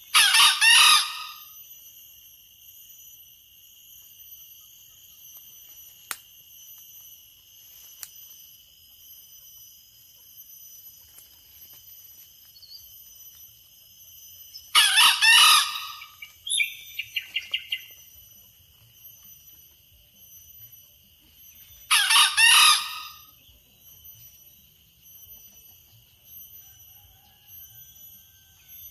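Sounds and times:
rooster crowing: 0:00.1 - 0:01.5, 0:14.7 - 0:16.2, 0:21.9 - 0:23.3, 0:26.5 - 0:28.9.

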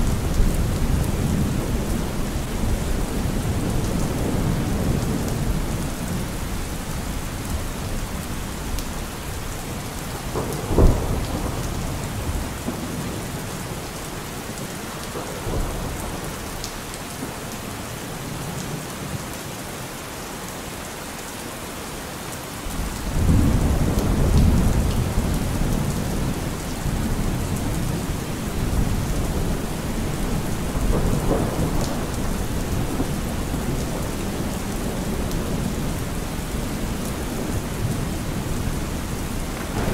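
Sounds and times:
steady rain: 0:00.0 - 0:39.9
low thunder rumble: 0:10.3 - 0:13.3, 0:23.1 - 0:39.9
thunder crack: 0:30.8 - 0:33.8, 0:39.5 - 0:39.9.

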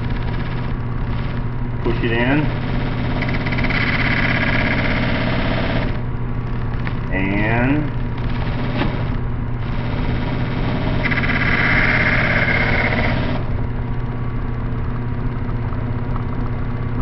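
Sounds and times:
disc sander motor running: 0:00.0 - 0:05.0, 0:07.8 - 0:14.0
drill bit grinding on sanding disc: 0:11.0 - 0:13.4.

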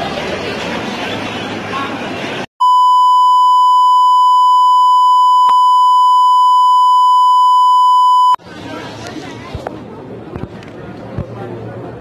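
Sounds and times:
high electronic beep tone: 0:02.6 - 0:08.4.

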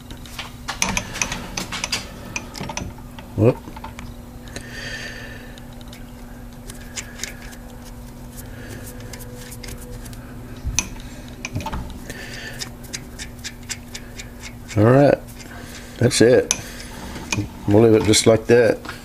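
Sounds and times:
low hum: 0:00.0 - 0:19.0
nut clicking and scraping on thread: 0:05.6 - 0:08.0, 0:12.3 - 0:17.5.

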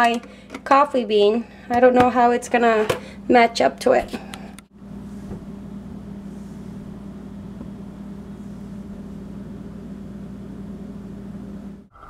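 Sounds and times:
electric kettle humming: 0:04.2 - 0:11.9.

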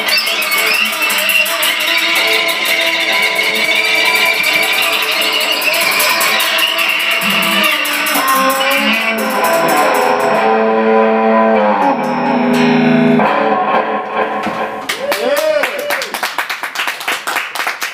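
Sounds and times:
violin playing: 0:00.0 - 0:13.5
guitar playing: 0:00.0 - 0:14.9.

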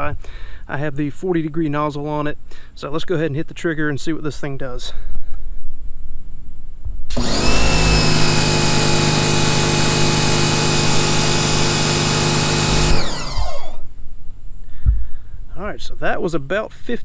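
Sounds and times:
pressure washer motor and pump: 0:07.1 - 0:13.8.

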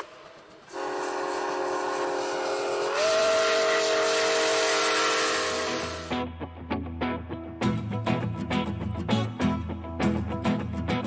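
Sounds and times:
multi-chime train horn: 0:00.7 - 0:06.2.

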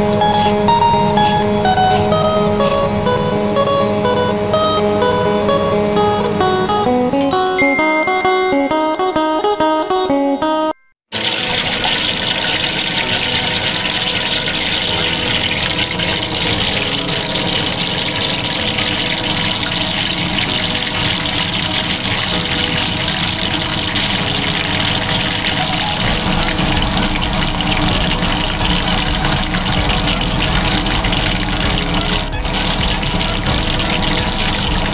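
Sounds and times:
cutlet sizzling in hot oil: 0:00.0 - 0:02.9, 0:11.2 - 0:34.9.

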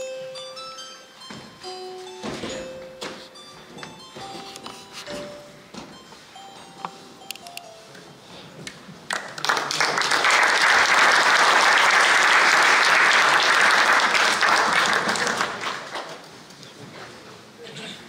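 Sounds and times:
audience applauding: 0:09.1 - 0:16.2.

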